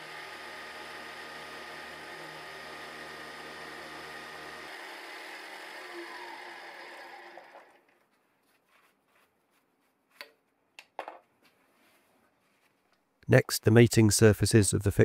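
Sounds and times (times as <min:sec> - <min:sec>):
milling machine cutting metal: 0:00.0 - 0:07.8.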